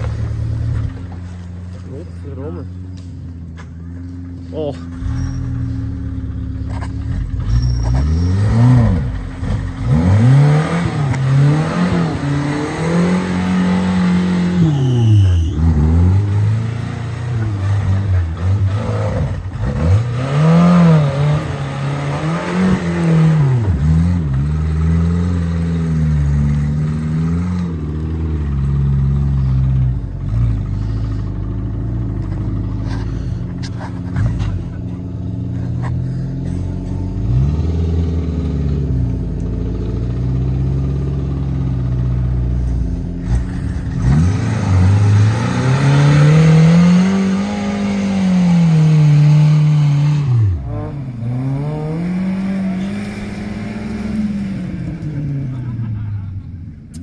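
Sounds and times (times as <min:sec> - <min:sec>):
car engine revving hard: 0:07.4 - 0:33.0, 0:37.1 - 0:56.0.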